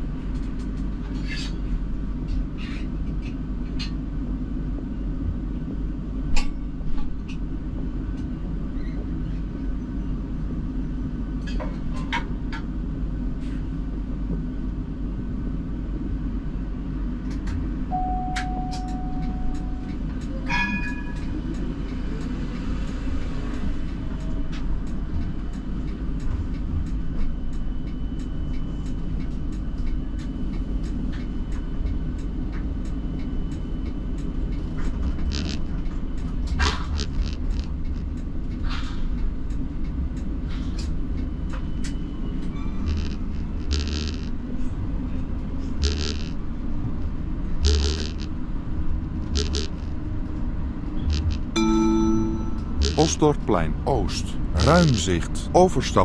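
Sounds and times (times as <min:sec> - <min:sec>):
tram rumble: 0:00.0 - 0:56.0
short held tone: 0:17.9 - 0:19.9, 0:51.6 - 0:53.7
brief ringing tone: 0:17.9 - 0:20.0, 0:51.6 - 0:53.0.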